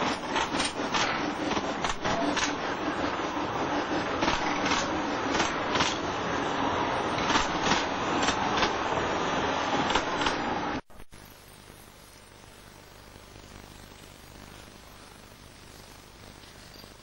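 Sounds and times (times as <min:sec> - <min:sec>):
sharp track clicks: 0:00.0 - 0:03.1, 0:04.0 - 0:06.2, 0:07.2 - 0:08.9, 0:09.8 - 0:10.5
railway wheels rattling on track: 0:00.0 - 0:10.6.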